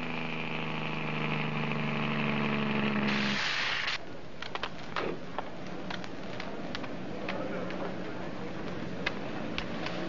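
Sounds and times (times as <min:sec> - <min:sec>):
vehicle engine running: 0:00.0 - 0:03.9
short sharp hiss: 0:03.1 - 0:04.0.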